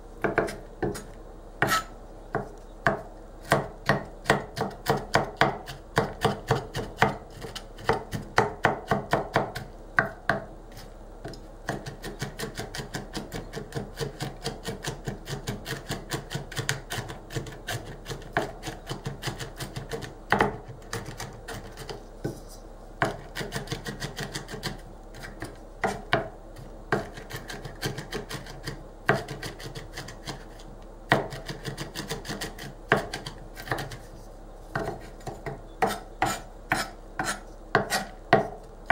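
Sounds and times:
knife chopping in plastic bowl: 23.0s - 26.3s, 26.9s - 34.1s, 34.7s - 38.6s.

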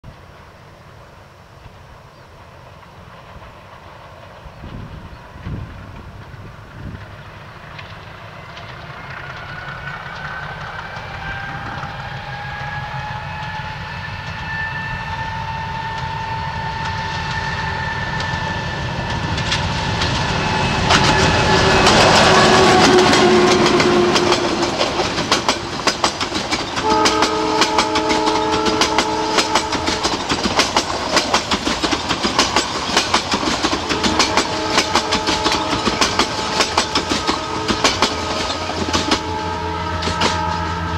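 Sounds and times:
train wheels clickety-clack: 1.6s - 40.9s
steady multi-tone horn: 11.0s - 25.1s, 26.8s - 31.4s, 33.7s - 40.9s
locomotive brakes whining: 13.0s - 40.9s.

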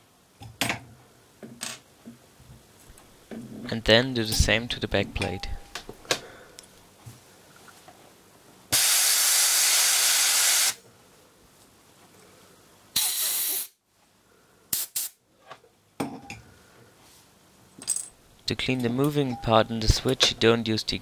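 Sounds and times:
compressed air blow gun hissing: 8.7s - 10.8s, 13.0s - 13.8s.

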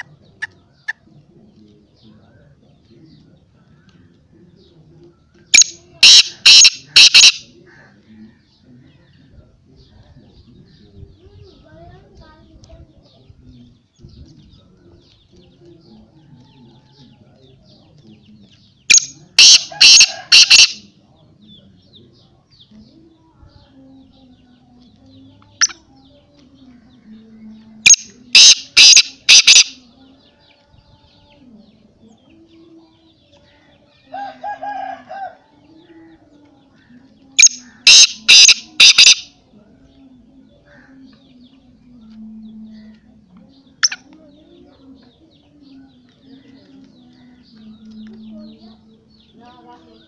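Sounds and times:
francolin calling harsh notes: 5.6s - 7.4s, 27.9s - 29.8s, 37.4s - 39.3s.

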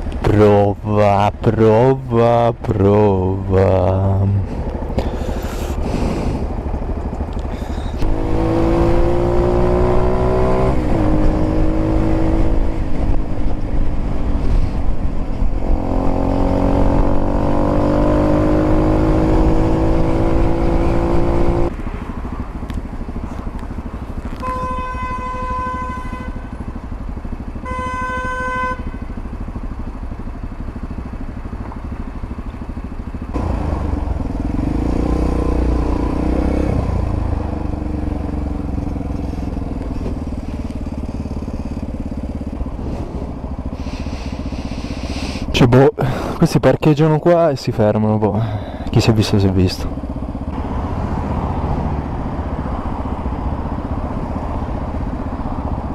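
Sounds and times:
motorcycle engine accelerating: 2.3s - 46.4s, 48.3s - 55.9s
vehicle horn blasts: 24.3s - 26.7s, 27.6s - 29.3s.

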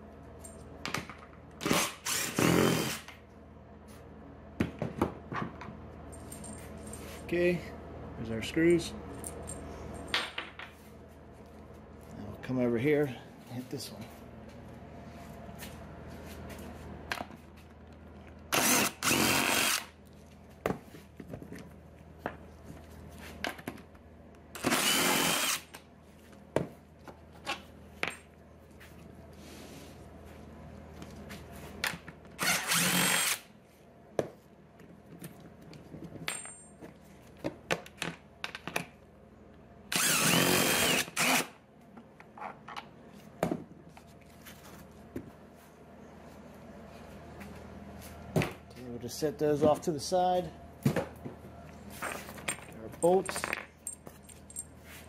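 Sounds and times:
impact driver bursts: 1.6s - 3.1s, 18.5s - 19.9s, 24.6s - 25.7s, 32.4s - 33.5s, 39.9s - 41.6s.

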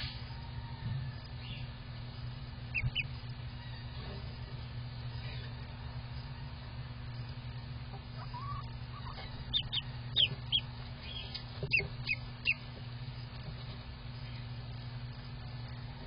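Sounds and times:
steady low hum: 0.0s - 16.0s
duckling peeping: 2.6s - 3.9s, 7.9s - 14.4s.

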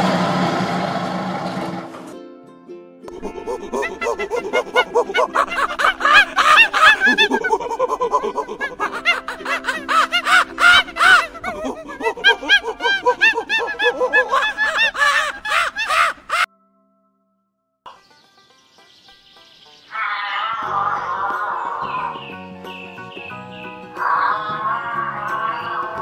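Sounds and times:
background music: 2.1s - 15.6s, 20.5s - 26.0s
chattering high calls: 3.1s - 16.5s, 18.2s - 26.0s.

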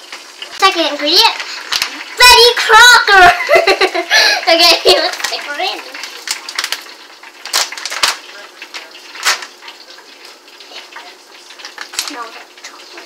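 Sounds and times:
dry mix pouring into metal bowl: 4.8s - 12.6s
plastic pouch crinkling: 4.9s - 9.6s.

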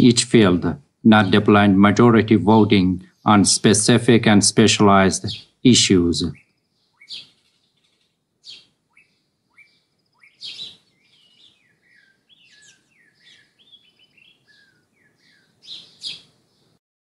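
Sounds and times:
sharp bird calls: 0.0s - 16.8s
small birds chirping and twittering: 0.0s - 16.8s.

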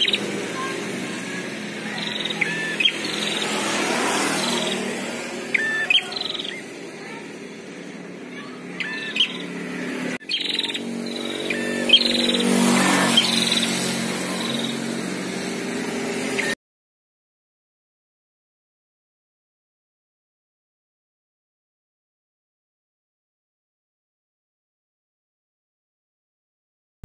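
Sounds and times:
birds chirping back and forth: 0.0s - 16.6s
vehicle engine hum: 0.0s - 16.6s.

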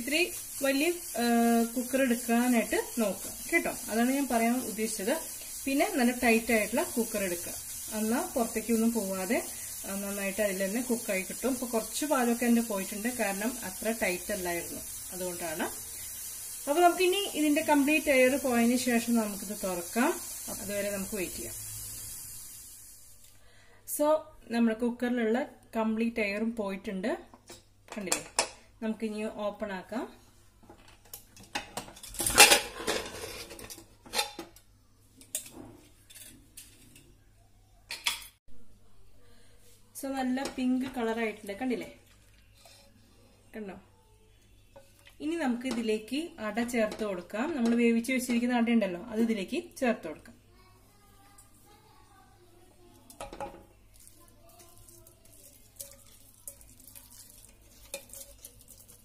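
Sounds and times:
metal lid clanks and scrapes: 32.0s - 34.5s.

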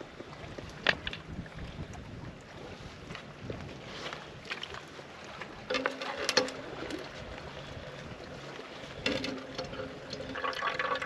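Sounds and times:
water trickling into a bottle: 9.0s - 11.0s.

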